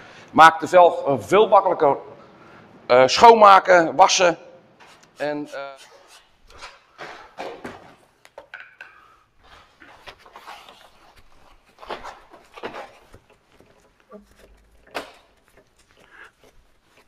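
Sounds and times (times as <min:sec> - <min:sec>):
handling rustles and scrapes: 0:09.4 - 0:17.0.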